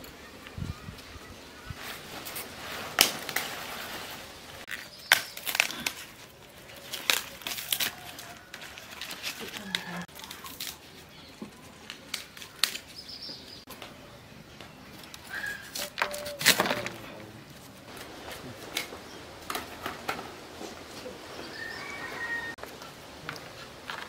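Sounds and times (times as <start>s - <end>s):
leaves rustling: 0.0s - 24.0s
vegetable leaves snapping and tearing: 2.2s - 3.5s, 4.7s - 13.0s.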